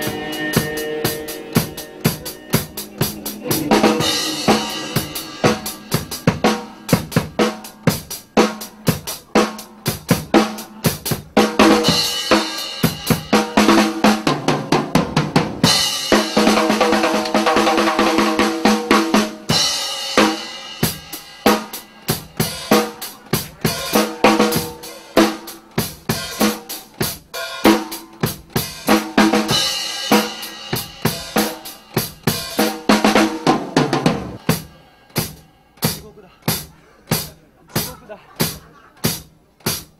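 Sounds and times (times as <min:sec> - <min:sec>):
band pitched tones: 0:00.0 - 0:08.9
drum kit playing: 0:00.0 - 0:39.9.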